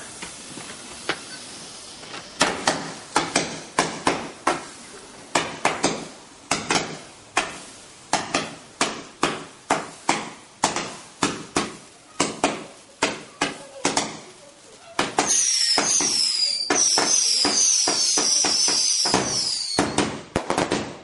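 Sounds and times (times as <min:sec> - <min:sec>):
firework shots popping: 0:02.1 - 0:21.0.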